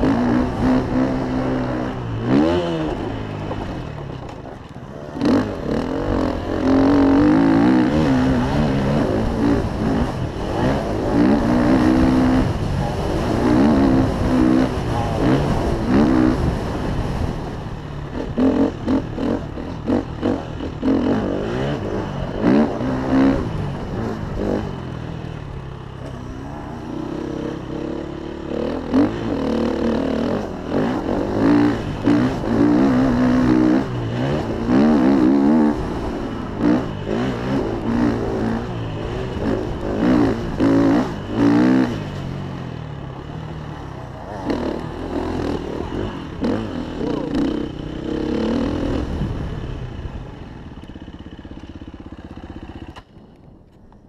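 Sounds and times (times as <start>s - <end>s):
wind rumble on microphone: 0.0s - 24.9s
motocross bike engine revving: 0.0s - 53.1s.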